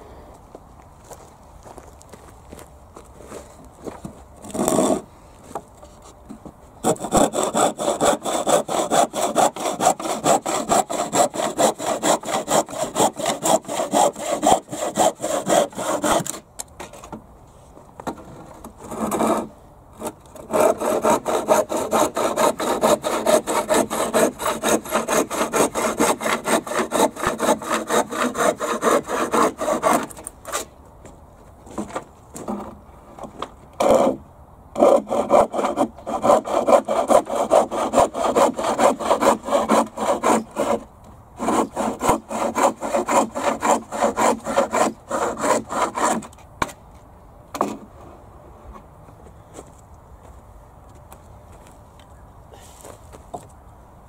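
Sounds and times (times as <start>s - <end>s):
handsaw cutting wood: 4.4s - 5.1s, 6.8s - 16.4s, 18.8s - 30.7s, 33.8s - 34.2s, 34.8s - 46.4s.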